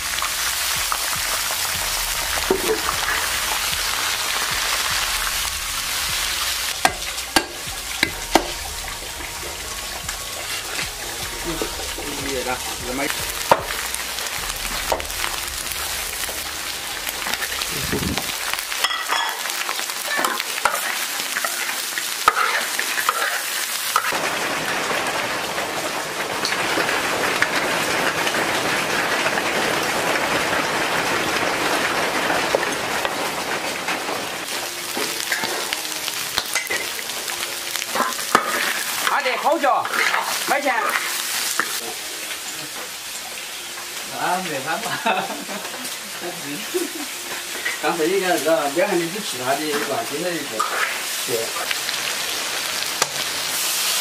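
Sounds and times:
food sizzling in hot oil: 0:00.0 - 0:54.0
spatula scraping pan: 0:20.2 - 0:24.1, 0:38.0 - 0:39.0, 0:39.8 - 0:41.8, 0:50.6 - 0:51.1.

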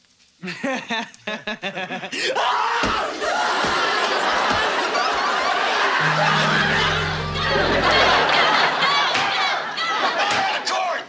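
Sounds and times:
people shouting: 0:02.3 - 0:03.8
audience cheering and laughing: 0:03.3 - 0:10.7.

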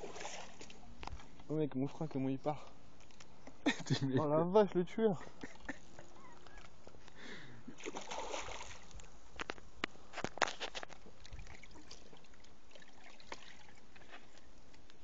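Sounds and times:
fish thrashing water splashing: 0:00.0 - 0:00.8, 0:07.8 - 0:09.1, 0:11.1 - 0:14.0.

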